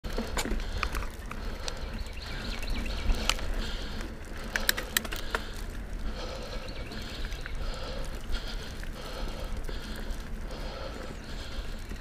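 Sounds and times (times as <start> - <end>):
wind and tyre rumble: 0.0 - 12.0
bike clicks and rattles: 0.1 - 12.0.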